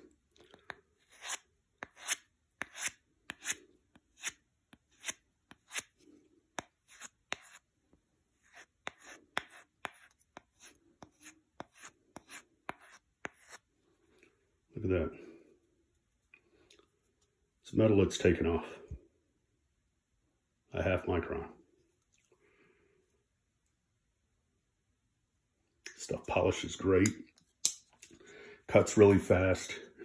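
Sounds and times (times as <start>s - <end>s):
knife blade scraping on strop: 1.0s - 3.6s.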